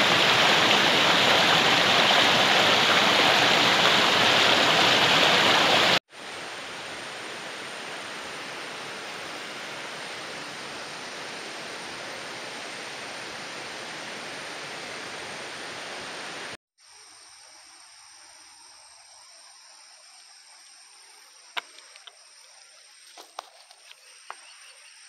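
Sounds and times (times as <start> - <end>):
stream rushing: 0.0 - 16.6.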